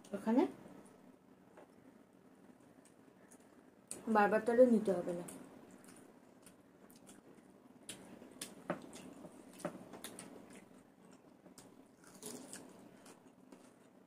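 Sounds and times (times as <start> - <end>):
chewing and mouth smacks: 5.7 - 14.0.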